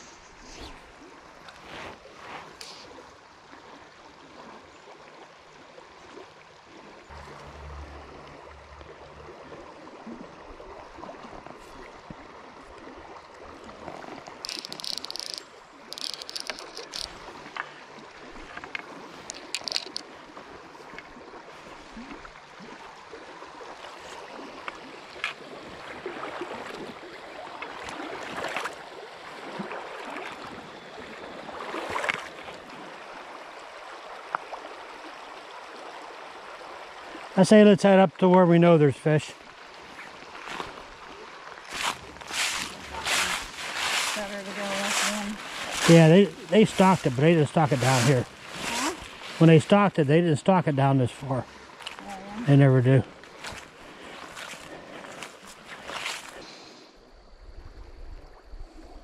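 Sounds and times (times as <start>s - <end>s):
creek water rippling over stones: 0.0s - 57.2s
short high rasps: 14.4s - 17.1s.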